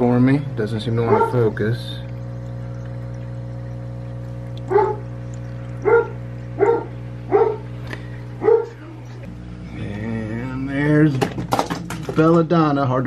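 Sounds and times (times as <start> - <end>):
steady low hum: 0.0 - 13.0
dog barking: 1.0 - 1.4, 4.7 - 5.1, 5.8 - 7.7, 8.4 - 8.8.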